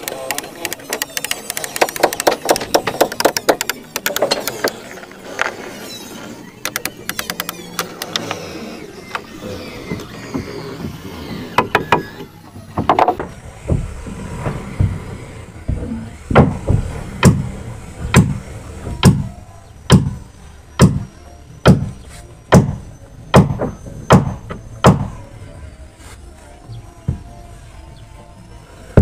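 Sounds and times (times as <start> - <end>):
scattered knocks: 0.0 - 4.8, 9.1 - 25.2
hammer blows on timber: 15.6 - 25.3.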